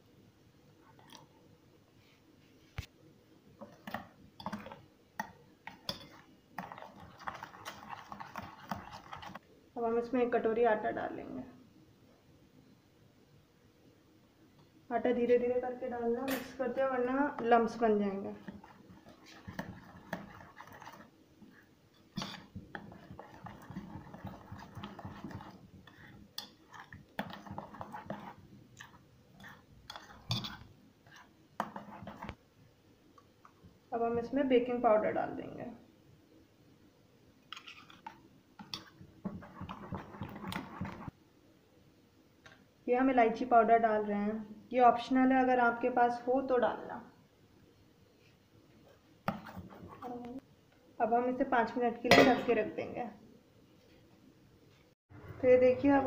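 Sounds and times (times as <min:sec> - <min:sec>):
spoon scraping metal bowl: 0:03.6 - 0:04.8, 0:05.7 - 0:09.4, 0:17.1 - 0:21.1, 0:22.0 - 0:32.4, 0:37.5 - 0:41.1, 0:49.3 - 0:50.3.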